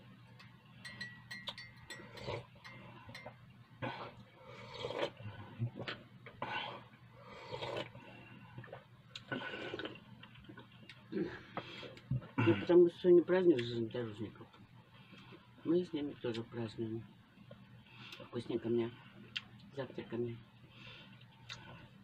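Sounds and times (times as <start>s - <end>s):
man slurping tea: 4.0s - 5.2s, 7.3s - 8.0s.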